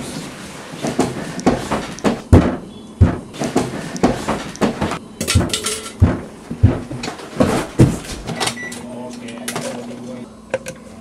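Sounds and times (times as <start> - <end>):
thumps and knocks on bed: 1.5 - 8.1.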